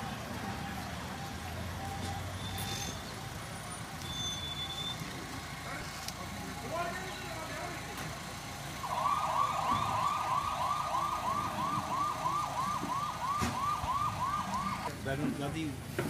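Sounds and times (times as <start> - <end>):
vehicle siren yelping: 8.8 - 14.9.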